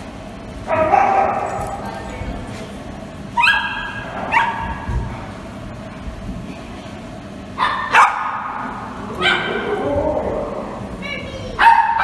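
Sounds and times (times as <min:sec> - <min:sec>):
dog yipping: 0:03.4 - 0:04.8.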